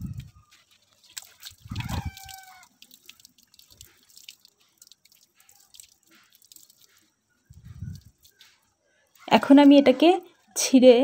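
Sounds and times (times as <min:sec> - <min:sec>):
water splashing on concrete: 0:00.9 - 0:07.1
farm animal calling: 0:01.7 - 0:02.7.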